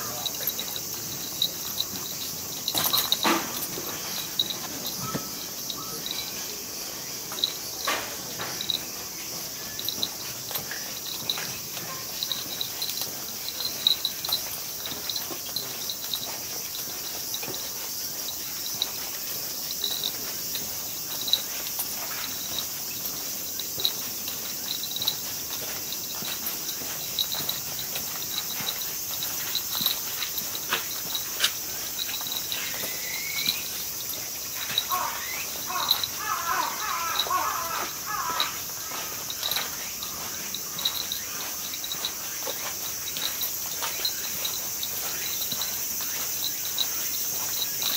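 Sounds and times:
footsteps on gravel: 0.0s - 47.9s
insects buzzing: 0.0s - 47.9s
bird chirping: 3.8s - 8.7s, 32.5s - 43.3s.

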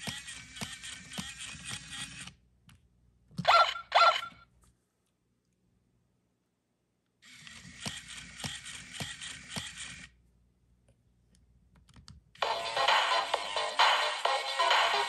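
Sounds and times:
toy motor and gears whirring: 0.0s - 2.4s, 7.2s - 10.2s
loud music: 12.4s - 15.0s.

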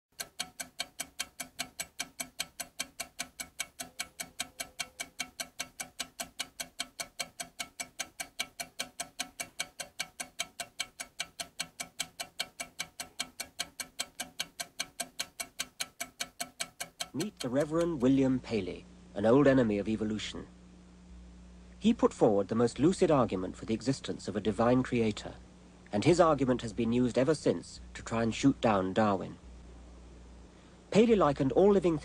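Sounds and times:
clockwork ticking quickly: 0.1s - 18.4s.

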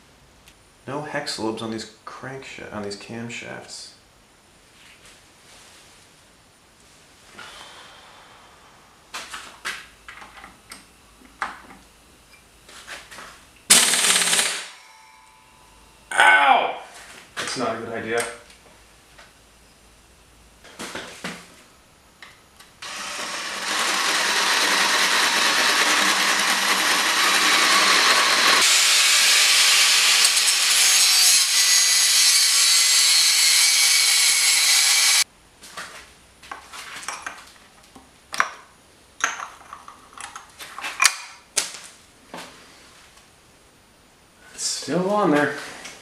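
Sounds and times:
power tool grinding metal: 22.8s - 35.2s.

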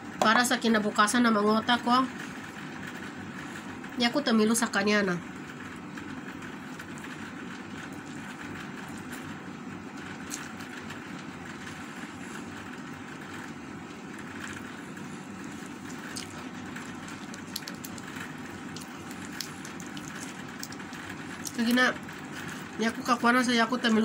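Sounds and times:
steady background hum: 0.0s - 24.0s
chewing: 15.6s - 21.6s.

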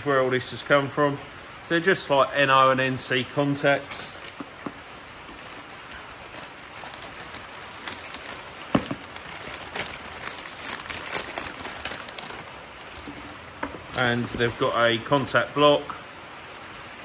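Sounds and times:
plastic bags crinkling: 3.8s - 14.7s.

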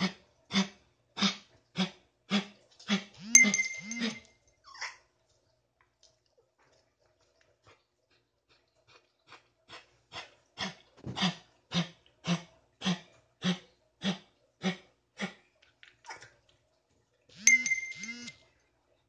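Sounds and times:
metallic clinks: 3.2s - 4.2s, 17.4s - 18.3s.

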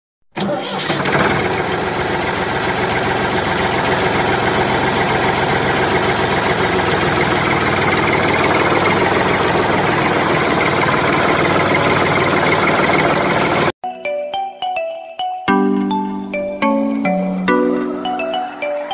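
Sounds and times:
engine idling: 0.4s - 13.7s.

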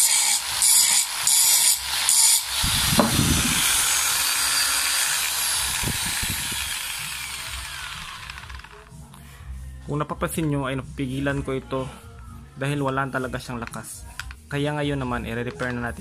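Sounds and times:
angle grinder grinding steel: 0.0s - 8.9s
angle grinder whine: 0.0s - 8.9s.

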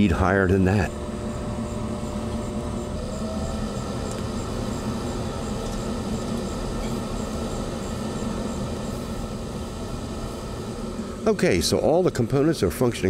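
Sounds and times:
stove fan humming: 0.0s - 13.0s.

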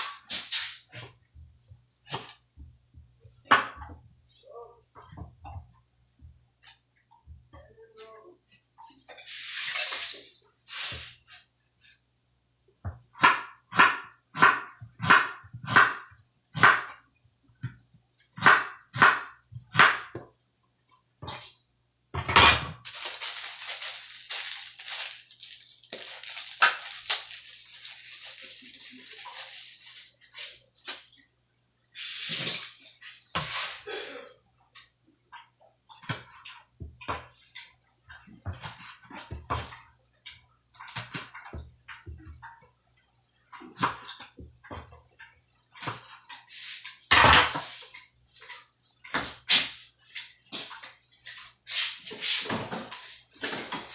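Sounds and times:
hands washing food in water: 22.8s - 31.1s.

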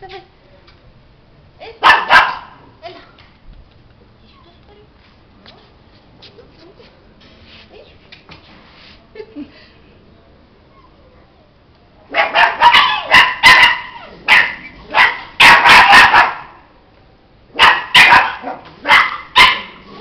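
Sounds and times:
dog barking: 1.8s - 2.6s, 12.1s - 16.6s, 17.5s - 19.8s.

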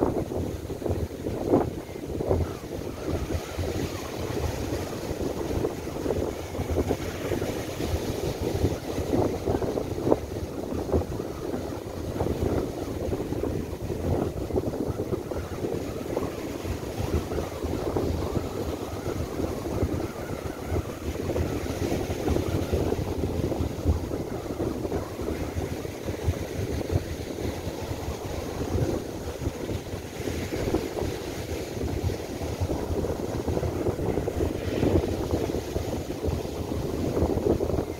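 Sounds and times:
surf breaking on beach: 0.0s - 37.9s
wind gusting on microphone: 0.0s - 37.9s.

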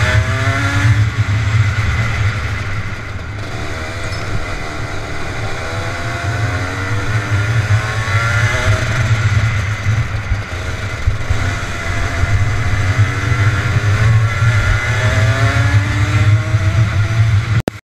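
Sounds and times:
kart engine accelerating: 0.0s - 17.6s
wind and vibration rumble: 0.0s - 17.6s.

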